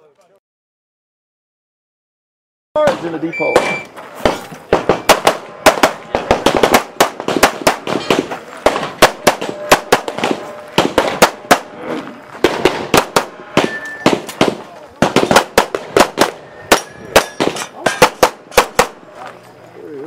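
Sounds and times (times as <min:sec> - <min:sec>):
pistol shots: 0:02.8 - 0:11.8, 0:12.4 - 0:19.0.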